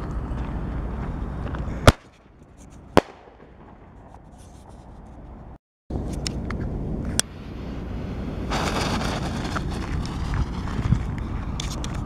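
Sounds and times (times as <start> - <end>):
firework shell rushing upward: 8.4 - 10.6.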